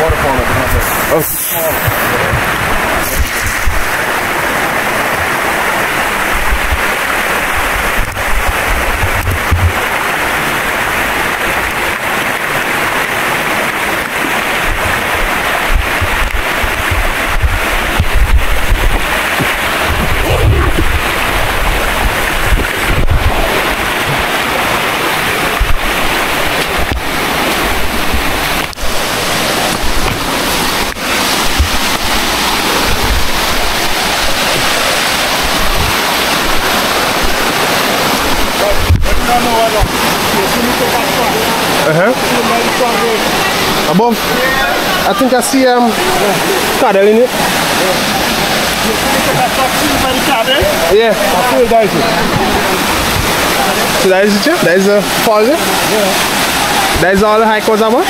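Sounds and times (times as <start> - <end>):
wind on microphone: 0.0 - 10.1, 14.3 - 40.2
stream water flowing: 0.0 - 58.0.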